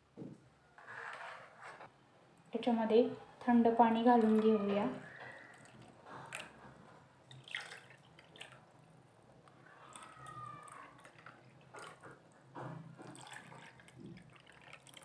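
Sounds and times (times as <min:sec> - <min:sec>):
water splashing and trickling: 0:03.9 - 0:15.0
water pouring into glass bowls: 0:04.0 - 0:06.6, 0:07.3 - 0:08.9, 0:09.6 - 0:12.3, 0:13.0 - 0:15.0.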